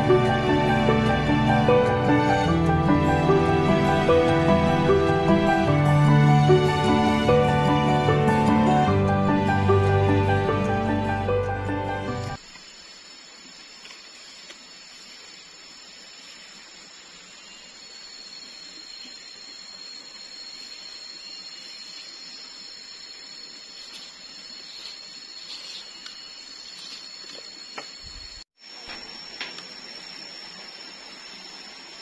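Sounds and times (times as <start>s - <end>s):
high-pitched insect drone: 0.0s - 32.0s
faint chirps: 12.4s - 32.0s.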